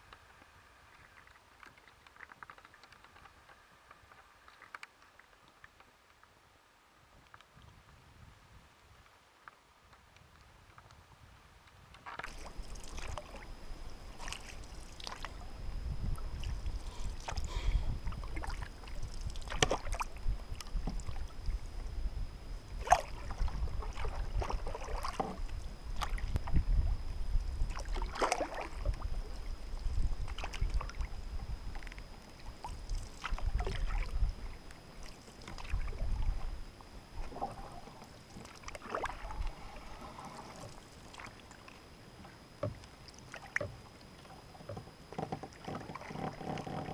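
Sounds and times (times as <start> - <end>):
water rumbling along hull: 10.5 - 46.9
paddle strokes splashing: 12.0 - 21.6, 22.7 - 26.6, 27.6 - 31.1, 31.8 - 46.9.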